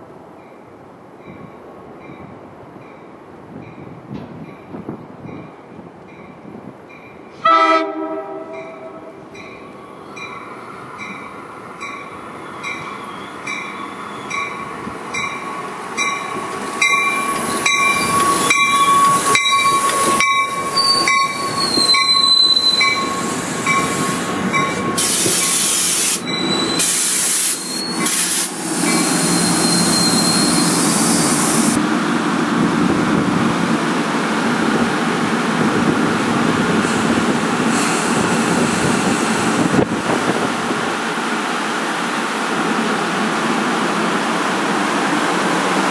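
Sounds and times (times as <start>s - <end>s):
train cars rolling past: 0.2s - 45.9s
train horn blast: 7.4s - 9.2s
wheel and brake squeal: 12.4s - 14.6s, 17.0s - 31.4s.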